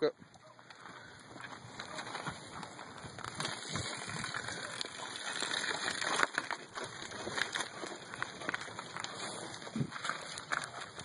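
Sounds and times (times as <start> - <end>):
hooves squelching in wet muck: 0.7 - 11.0.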